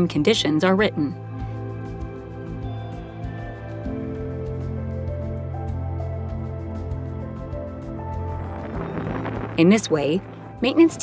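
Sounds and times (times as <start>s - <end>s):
sustained music notes: 7.6s - 11.0s
pulsing low bass: 8.0s - 10.9s.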